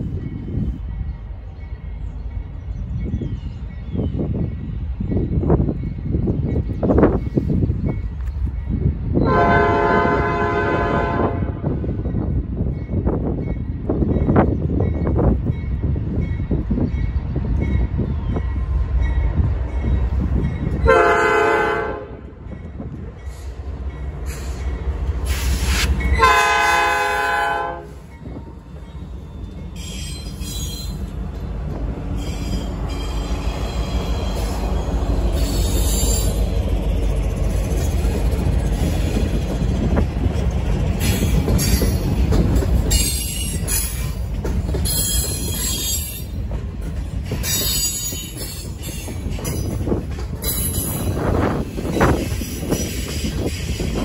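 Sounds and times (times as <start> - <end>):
locomotives rumbling past: 0.0 - 54.0
locomotive air horn: 9.3 - 11.7, 20.8 - 22.2, 25.3 - 28.0
high wheel squeal: 28.9 - 31.2, 44.8 - 46.4.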